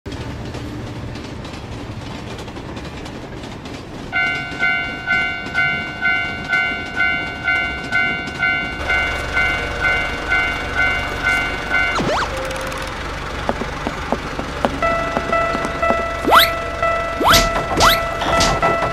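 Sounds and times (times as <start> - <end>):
train clacking on rails: 0.1 - 18.9
level crossing bell ringing: 4.2 - 12.8, 14.6 - 18.9.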